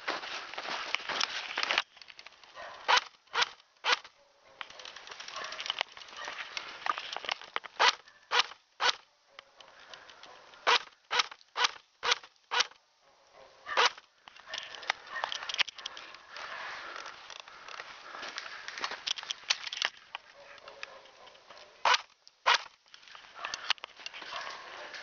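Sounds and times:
footsteps crunching in snow: 0:00.0 - 0:02.7, 0:04.8 - 0:07.3, 0:14.8 - 0:19.6, 0:23.0 - 0:25.0
airsoft gun shots: 0:10.6 - 0:12.8, 0:13.8 - 0:14.0, 0:21.8 - 0:22.7.

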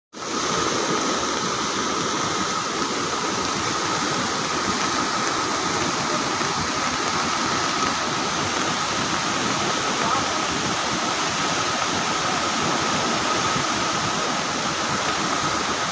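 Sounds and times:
river rushing torrent: 0:00.2 - 0:15.9.

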